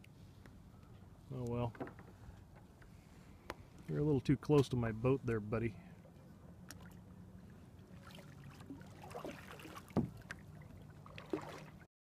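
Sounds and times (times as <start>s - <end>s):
paddle splashing in water: 7.8s - 11.9s.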